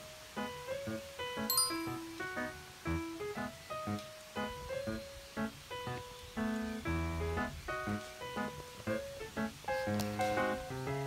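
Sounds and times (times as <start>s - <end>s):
light instrumental tune: 1.4s - 3.2s
bright high chime: 1.5s - 2.2s.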